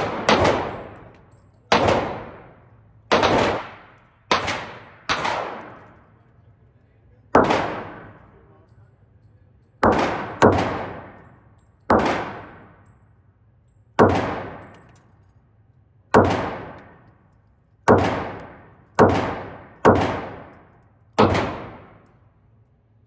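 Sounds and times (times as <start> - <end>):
gunshots with echo: 0.0 - 6.0, 7.3 - 8.4, 9.8 - 12.8, 14.0 - 14.9, 16.1 - 17.1, 17.9 - 22.1.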